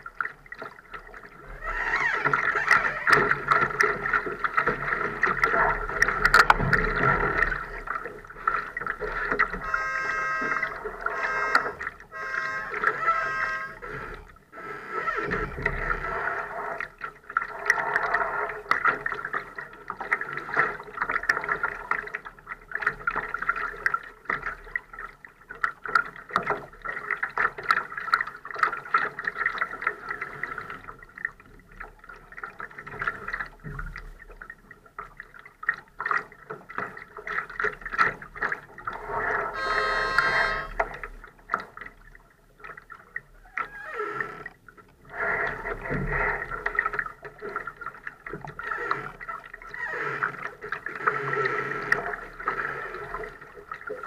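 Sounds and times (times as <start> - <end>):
water splashing against hull: 0.0 - 54.0
short high-pitched sound: 9.6 - 13.9, 39.6 - 40.8.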